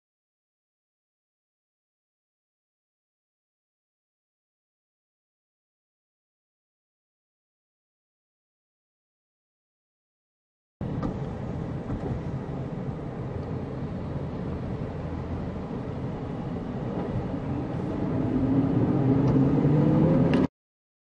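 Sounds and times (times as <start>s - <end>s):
car engine and road noise: 10.8s - 20.5s.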